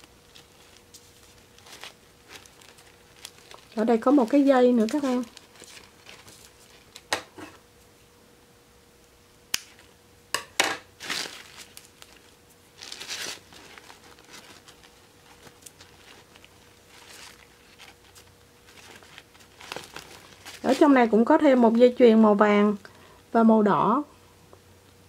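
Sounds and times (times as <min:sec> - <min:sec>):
fabric rustling: 0:00.0 - 0:07.0, 0:11.0 - 0:21.2.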